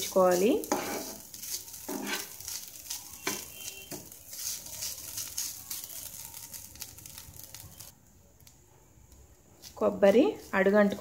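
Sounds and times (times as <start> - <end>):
metal spatula scraping pan: 0.0 - 5.8.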